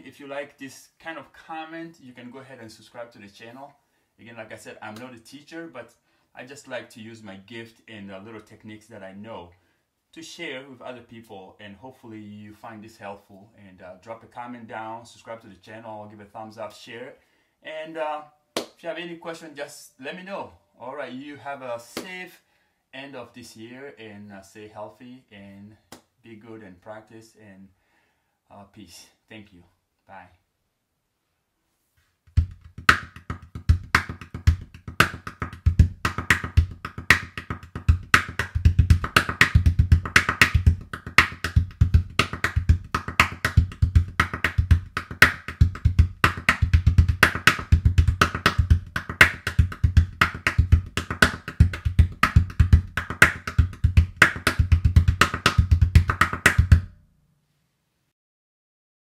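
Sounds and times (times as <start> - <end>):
gourd drummed with hands: 32.3 - 56.9.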